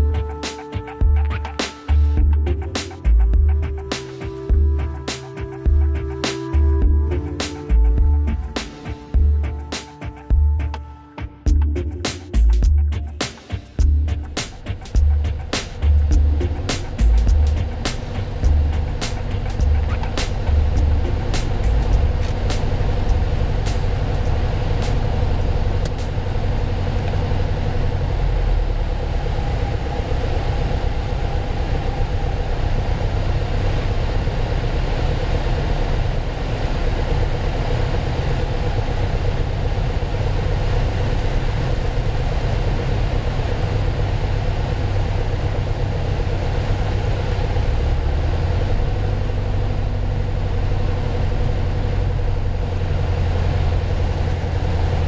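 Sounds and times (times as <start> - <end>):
aircraft engine and propeller droning: 13.0 - 55.0
wind noise over airframe: 14.5 - 55.0.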